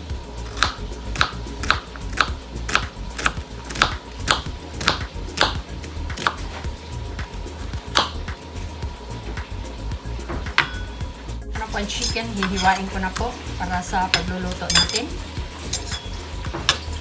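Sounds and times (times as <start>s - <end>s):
knife slicing onion: 0.4s - 8.4s.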